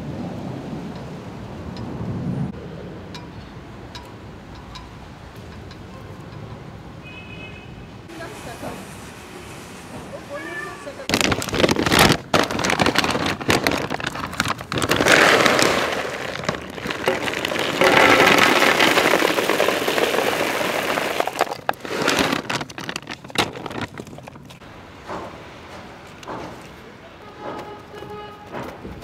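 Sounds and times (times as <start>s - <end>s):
dry kibble pouring onto plate: 12.6s - 23.8s.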